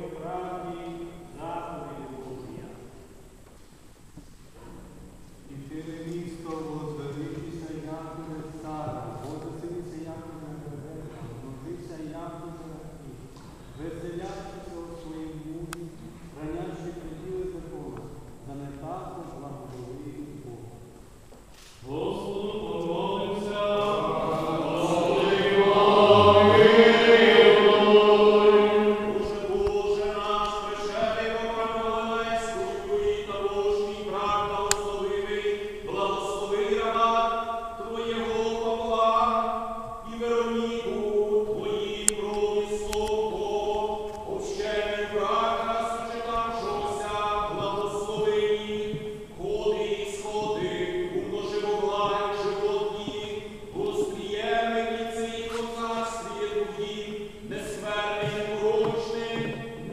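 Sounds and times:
liturgical chant: 0.0s - 3.0s, 5.5s - 20.8s, 21.7s - 59.9s
choir singing a chant: 21.9s - 39.5s.

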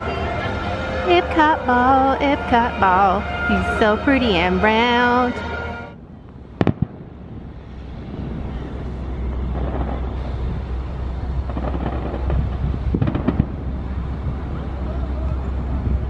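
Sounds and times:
traffic rumble: 0.0s - 16.0s
wind: 0.0s - 16.0s
fireworks cracking and popping: 6.6s - 10.8s, 11.4s - 14.0s.

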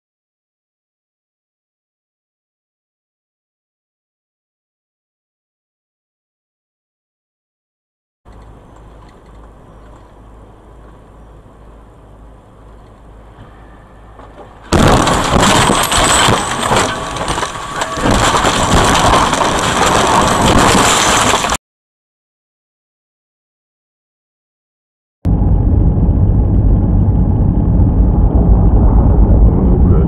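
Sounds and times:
road noise inside vehicle: 8.3s - 20.4s, 25.3s - 30.0s
car crash impact: 14.2s - 21.6s
harsh crashing noise: 14.7s - 21.6s.

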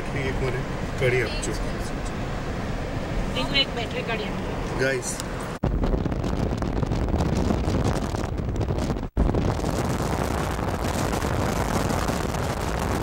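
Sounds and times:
wind and road noise: 0.0s - 13.0s
wind buffeting microphone: 5.5s - 13.0s.

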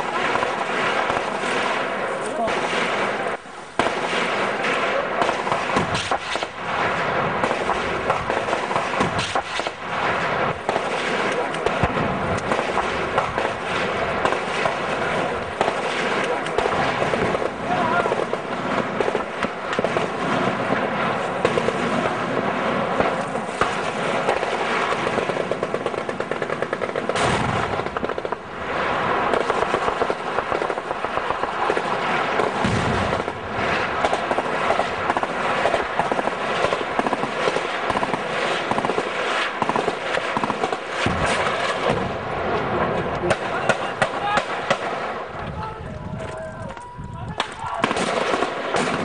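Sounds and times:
heavy bangs: 0.0s - 49.0s
automatic weapons fire: 3.8s - 28.4s, 29.3s - 42.2s, 47.4s - 49.0s.

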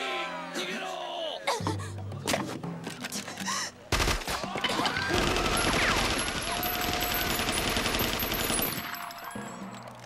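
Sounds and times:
crowd crying out: 4.3s - 7.8s
automatic gunfire: 5.1s - 9.0s.

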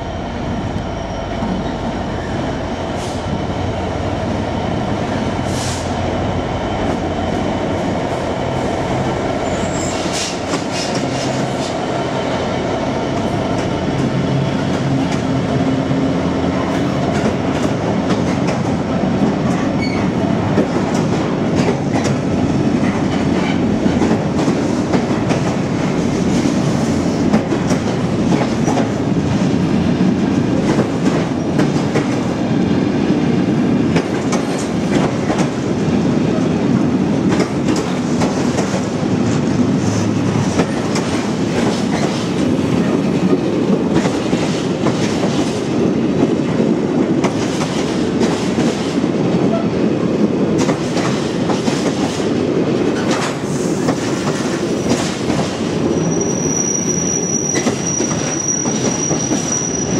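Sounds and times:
diesel locomotive engine humming: 0.0s - 47.3s
train wagons clacking over rail joints: 37.2s - 45.5s, 50.5s - 56.2s.

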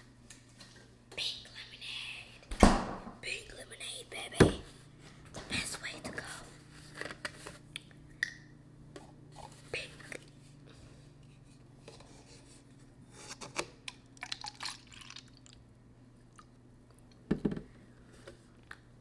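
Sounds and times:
steady low hum: 0.0s - 14.3s
loud dull thud: 2.6s - 3.2s
drink pouring into paper cup: 14.2s - 15.6s.

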